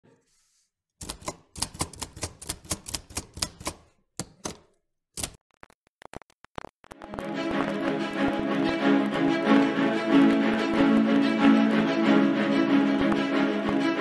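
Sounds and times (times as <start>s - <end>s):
typewriter keys clacking: 1.0s - 5.4s.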